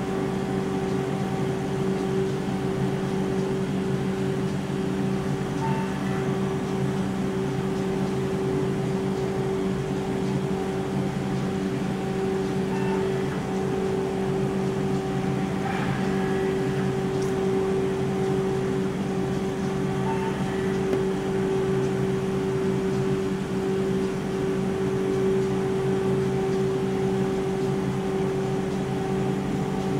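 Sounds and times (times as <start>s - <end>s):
ice cream machine humming: 0.0s - 29.9s.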